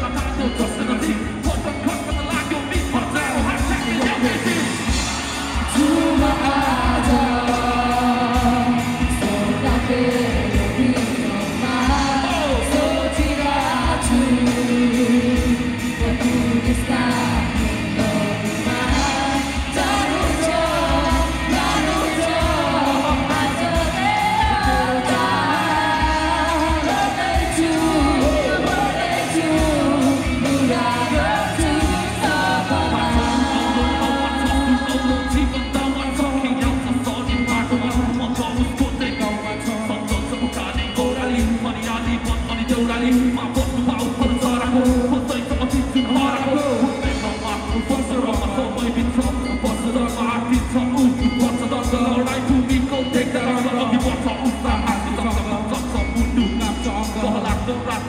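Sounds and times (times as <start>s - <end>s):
live band playing: 0.0s - 58.0s
people singing into microphones: 0.0s - 58.0s.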